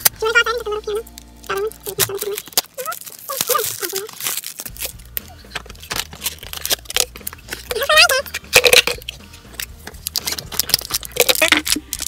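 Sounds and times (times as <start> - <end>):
child's wordless sing-song voice: 0.1 - 2.4
cardboard box and plastic rustling: 1.2 - 9.1.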